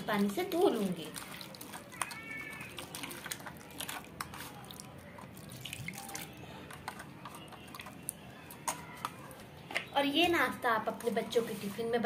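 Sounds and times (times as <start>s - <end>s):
small splashes and drips: 0.0s - 8.8s.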